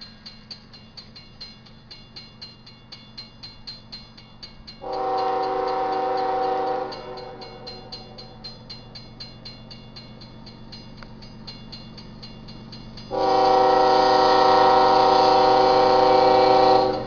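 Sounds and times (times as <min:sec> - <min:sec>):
railroad crossing bell ringing: 0:00.0 - 0:17.0
locomotive air horn blast: 0:04.8 - 0:08.2, 0:13.1 - 0:17.0.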